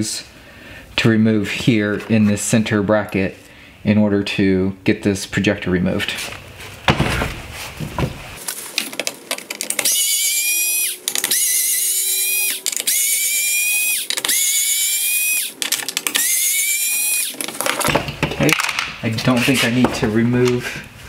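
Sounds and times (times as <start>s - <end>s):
clicks and handling noise: 8.4s - 9.9s, 11.0s - 11.4s, 12.5s - 13.0s, 14.0s - 14.4s, 15.4s - 16.4s, 17.2s - 20.7s
electric screwdriver motor whining: 9.6s - 17.5s.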